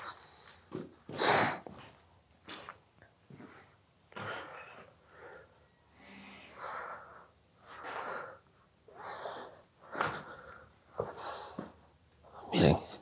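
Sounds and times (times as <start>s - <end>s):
person breathing: 3.6s - 13.0s.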